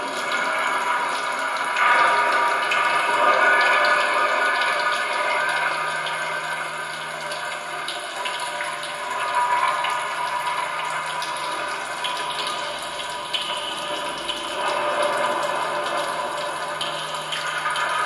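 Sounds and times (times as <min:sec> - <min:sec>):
watery rushing noise: 0:00.0 - 0:18.0.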